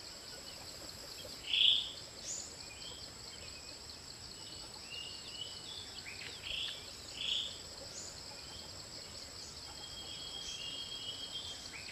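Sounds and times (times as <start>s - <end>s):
insect chorus buzzing: 0.0s - 11.9s.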